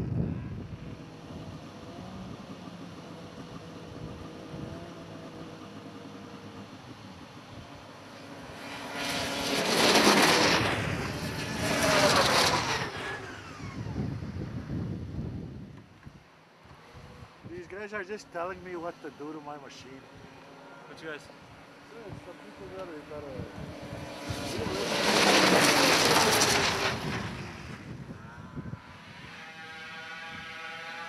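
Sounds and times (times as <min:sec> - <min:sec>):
snowmobiles racing by: 0:00.2 - 0:14.6, 0:16.7 - 0:31.0
snowmobile engines idling: 0:00.6 - 0:08.7, 0:17.6 - 0:27.2.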